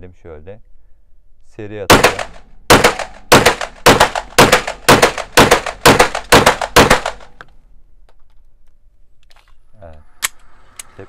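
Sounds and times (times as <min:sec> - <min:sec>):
pistol shots echoing indoors: 0:01.9 - 0:07.2.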